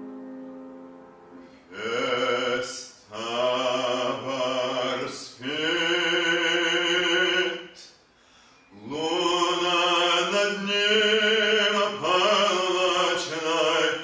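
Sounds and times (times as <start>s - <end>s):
piano chord: 0.0s - 4.3s
man singing operatically: 1.7s - 7.9s, 8.8s - 14.0s.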